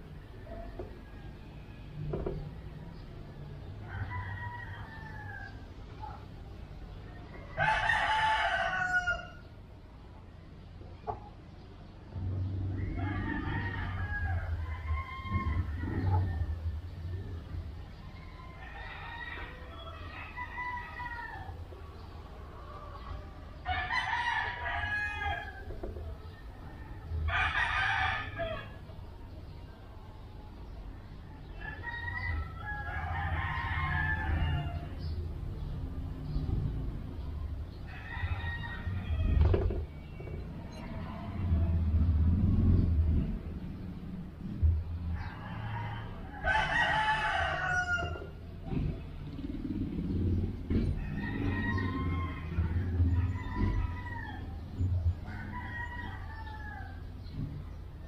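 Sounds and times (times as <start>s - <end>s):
rooster crowing: 3.4s - 6.2s, 7.3s - 9.5s, 12.7s - 17.4s, 18.0s - 21.7s, 22.6s - 29.0s, 31.4s - 35.2s, 37.8s - 42.1s, 45.1s - 48.5s, 50.7s - 57.3s
steady low rumble: 32.3s - 46.5s.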